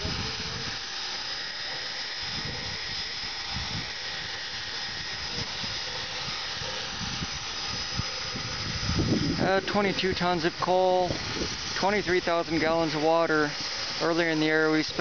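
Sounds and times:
steam locomotive hissing: 0:00.0 - 0:15.0.

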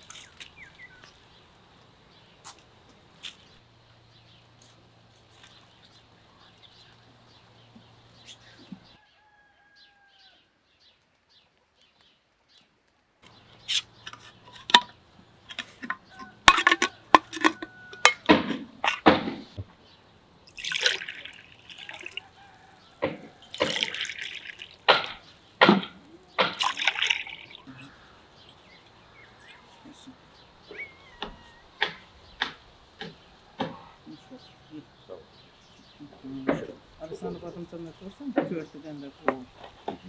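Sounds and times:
compote pouring into glasses: 0:20.5 - 0:22.3, 0:23.4 - 0:24.9, 0:26.4 - 0:27.7.

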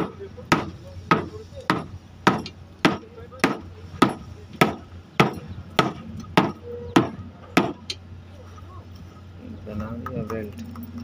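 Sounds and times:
wooden mallet pounding rubber belt: 0:00.0 - 0:07.9.

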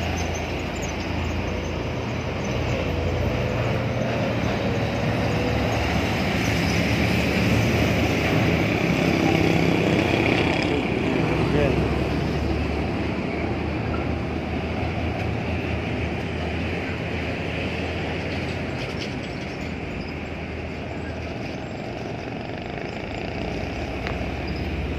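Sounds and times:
diesel truck driving past: 0:00.0 - 0:18.8
road traffic: 0:00.0 - 0:24.9.

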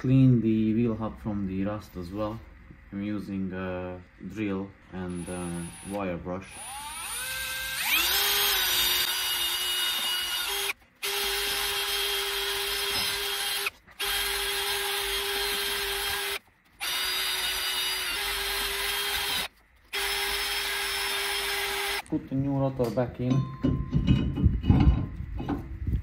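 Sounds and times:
drill motor whine: 0:05.0 - 0:22.0.

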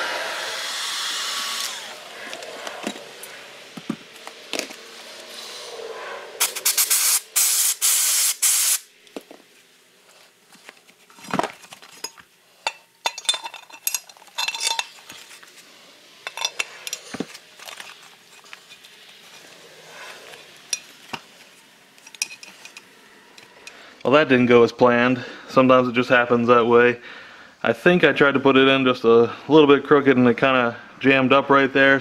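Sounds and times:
air duster spray hiss: 0:00.0 - 0:09.0.

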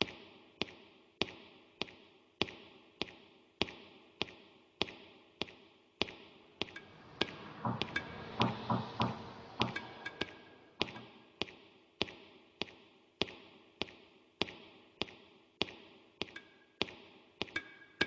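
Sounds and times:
echoing footsteps: 0:00.0 - 0:18.0
low drum hits: 0:06.8 - 0:11.1.

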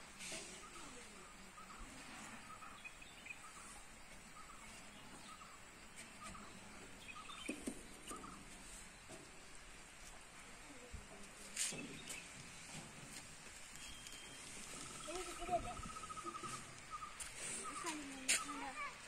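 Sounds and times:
outdoor background noise: 0:00.0 - 0:19.0
bird chirping: 0:00.6 - 0:09.2, 0:13.7 - 0:18.9.

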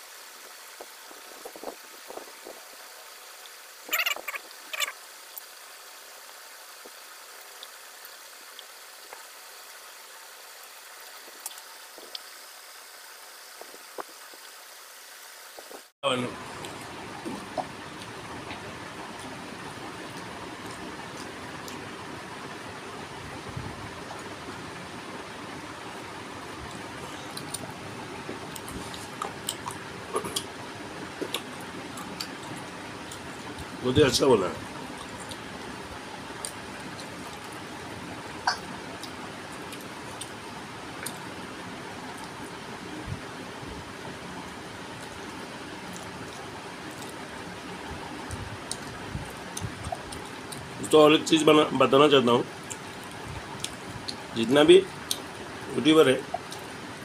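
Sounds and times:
background hiss: 0:00.0 - 0:57.0
chewing: 0:28.3 - 0:30.5, 0:31.2 - 0:33.7.

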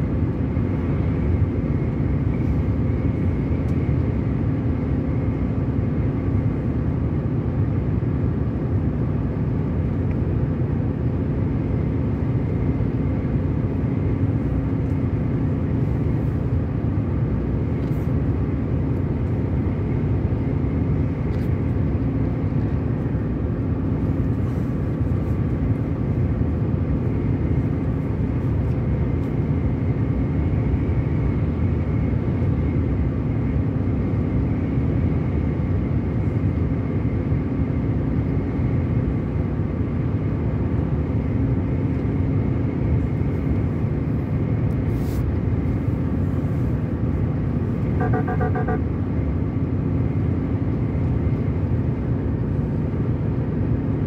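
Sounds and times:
car engine and tyre noise: 0:00.0 - 0:54.0
short beeps: 0:48.0 - 0:48.8.

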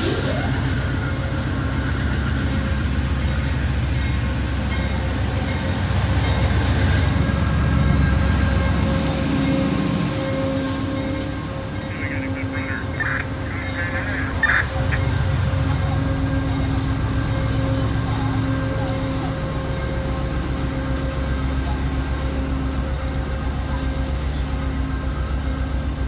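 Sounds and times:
diesel locomotive engine rumble: 0:00.0 - 0:26.0
steady hum: 0:11.6 - 0:15.4.

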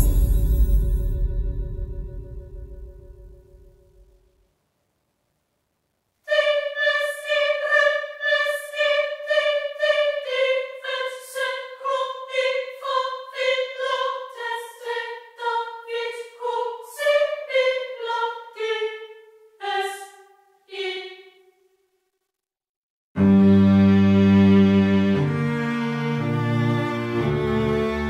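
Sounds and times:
high voice singing operatically: 0:06.3 - 0:19.0, 0:19.6 - 0:21.2.

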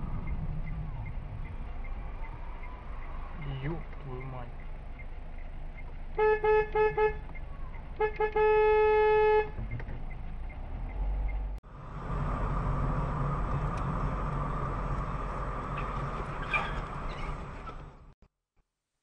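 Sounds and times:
road and engine noise: 0:00.0 - 0:18.2
car horn honking: 0:06.2 - 0:07.2, 0:08.0 - 0:09.6.

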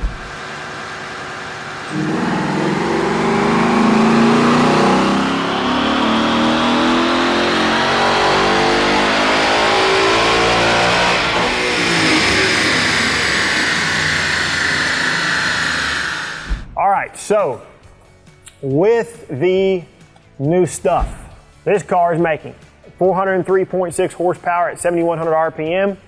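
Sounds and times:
car engine revving on dyno: 0:00.0 - 0:16.6.

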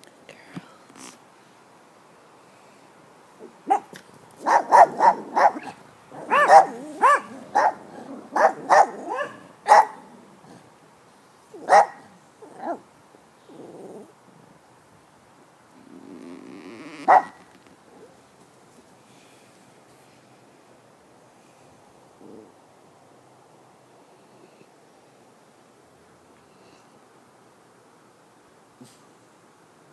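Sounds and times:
dog barking: 0:03.7 - 0:10.0, 0:11.6 - 0:12.8, 0:17.0 - 0:17.4.

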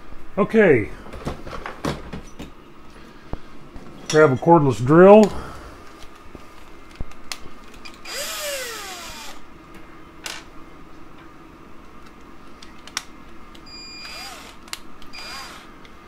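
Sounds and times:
cordless drill motor whine: 0:07.8 - 0:09.4, 0:13.7 - 0:15.7.

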